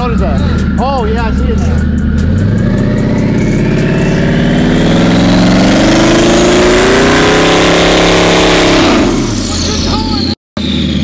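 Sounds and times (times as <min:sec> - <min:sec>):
car engine revving up: 0:00.0 - 0:11.0.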